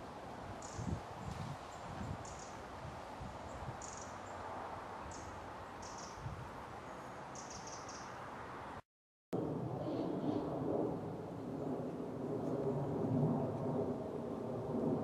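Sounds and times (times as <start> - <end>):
small birds chirping: 0.6 - 4.4, 5.0 - 8.2.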